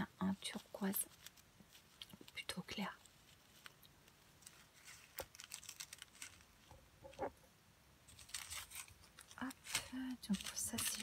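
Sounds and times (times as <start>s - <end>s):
plastic bags clicking and rustling: 4.4s - 6.7s, 8.1s - 11.0s.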